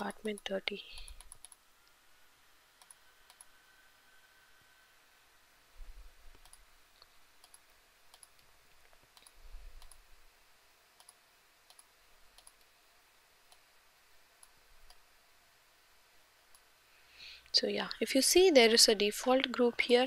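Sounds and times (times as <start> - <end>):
room hiss: 0.0 - 20.0
faint computer mouse clicks: 0.3 - 1.6, 2.8 - 3.5, 6.3 - 10.0, 11.0 - 12.7.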